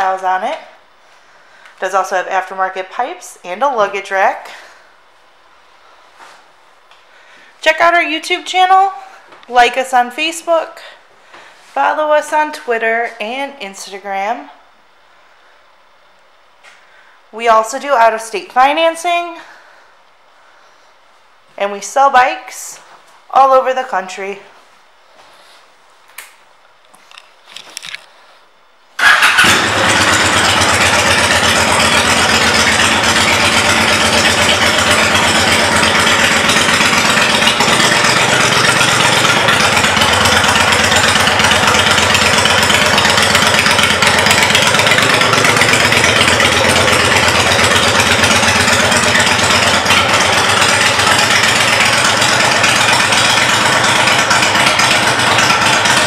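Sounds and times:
motorcycle engine idling loud: 0:29.0 - 0:56.0.

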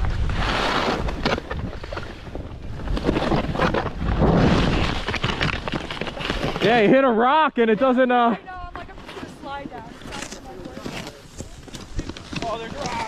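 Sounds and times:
wind on microphone: 0:00.0 - 0:06.6
snow scraping underfoot: 0:00.0 - 0:07.0, 0:07.8 - 0:13.0.

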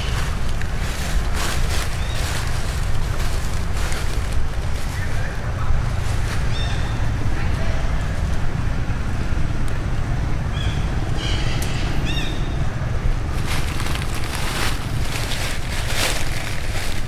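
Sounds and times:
rustling hiss: 0:00.0 - 0:06.9, 0:13.1 - 0:17.0.

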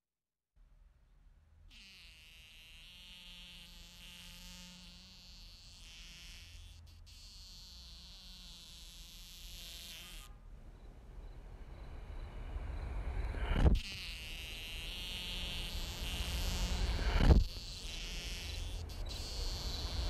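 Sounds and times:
fly buzzing: 0:01.7 - 0:10.4, 0:13.5 - 0:20.0
faint low hum: 0:08.9 - 0:20.0.

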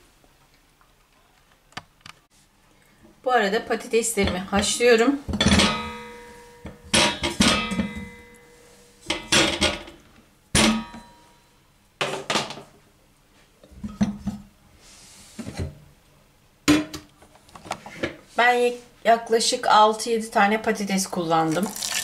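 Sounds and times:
pot ringing: 0:05.4 - 0:09.8, 0:10.6 - 0:11.6.

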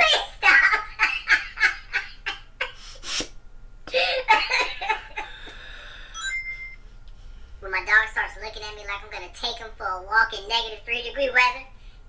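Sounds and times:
man laughing: 0:03.9 - 0:05.5
high electronic beep: 0:06.2 - 0:06.8.

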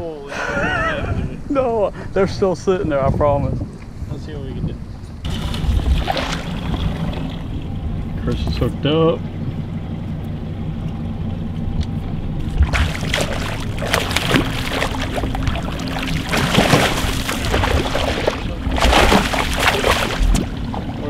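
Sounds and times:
steady low hum: 0:04.6 - 0:21.0
fish splashing in water: 0:05.3 - 0:07.7, 0:12.4 - 0:21.0.

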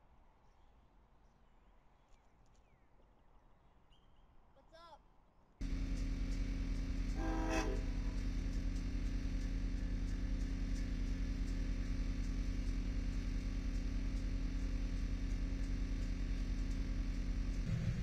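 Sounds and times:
diesel locomotive engine drone: 0:05.6 - 0:18.0.

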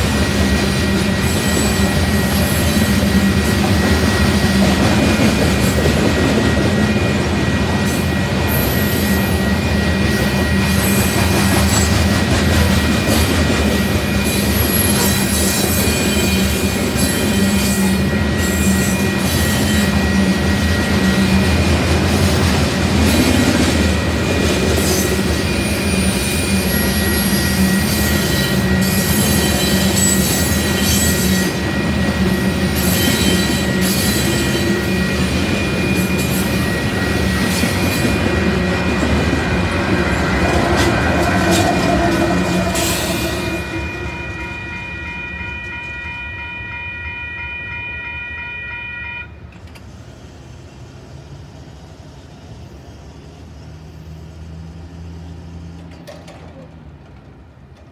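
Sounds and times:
rail clicks: 0:00.0 - 0:45.9, 0:49.4 - 0:50.1, 0:55.7 - 0:57.9
train wheels rumbling on rail: 0:00.0 - 0:46.6, 0:49.2 - 0:57.9
high-pitched wheel squeal: 0:13.8 - 0:21.6, 0:24.8 - 0:39.0, 0:40.2 - 0:49.3.

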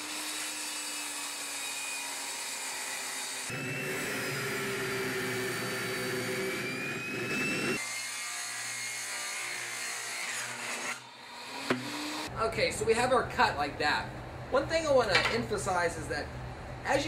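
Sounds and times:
table saw cutting plastic pipe: 0:00.0 - 0:12.3.

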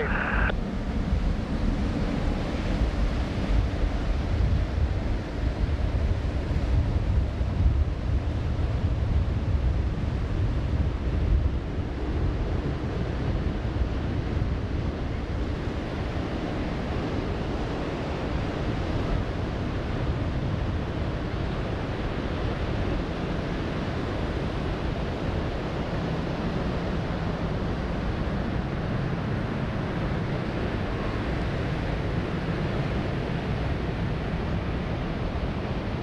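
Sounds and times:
ocean surf: 0:00.0 - 0:00.5.

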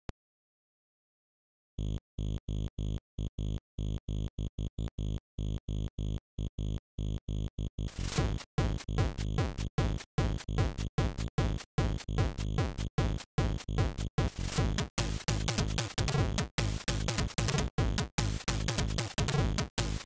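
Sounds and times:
chiptune with drum hits: 0:07.9 - 0:20.0.

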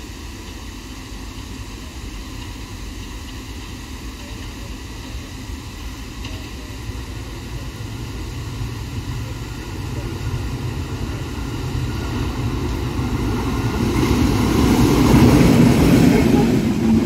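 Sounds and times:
train locomotive rumbling: 0:00.0 - 0:17.0.

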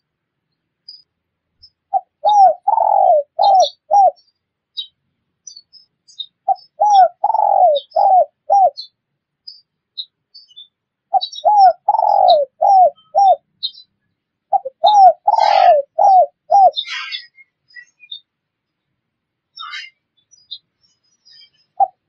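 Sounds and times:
small birds chirping: 0:00.0 - 0:22.0
dove cooing: 0:01.9 - 0:04.2, 0:06.5 - 0:08.8, 0:11.1 - 0:13.5, 0:14.5 - 0:17.2, 0:21.8 - 0:22.0.

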